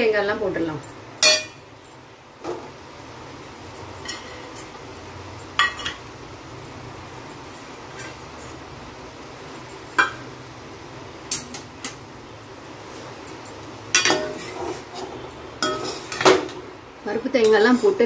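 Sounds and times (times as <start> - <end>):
steel utensils clinking on pan: 0.8 - 2.0, 5.4 - 6.1, 13.3 - 14.6, 15.6 - 16.5.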